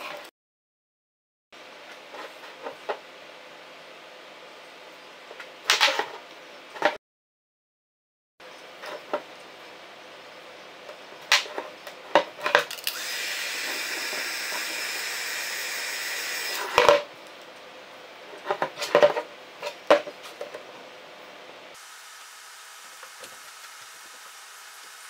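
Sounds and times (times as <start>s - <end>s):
heat gun hissing: 12.9s - 16.8s, 21.8s - 25.0s.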